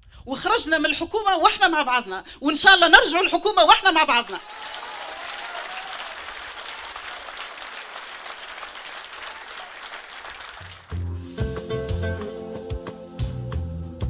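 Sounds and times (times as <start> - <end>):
audience applause: 4.4 - 11.0
guitar music: 11.0 - 13.4.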